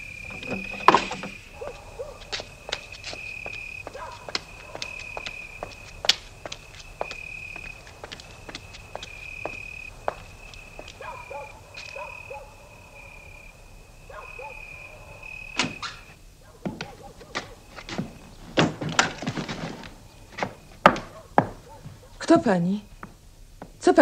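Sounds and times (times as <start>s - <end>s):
door clicks knocks and thuds: 0.2s - 1.7s.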